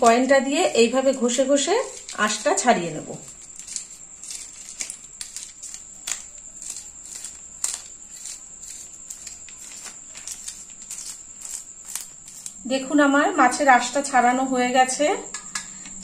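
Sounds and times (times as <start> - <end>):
coin scraping fish scales: 3.3 - 12.6.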